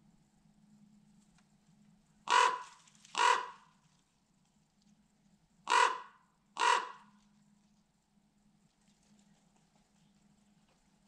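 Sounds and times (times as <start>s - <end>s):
crow cawing: 2.3s - 3.7s, 5.7s - 7.1s.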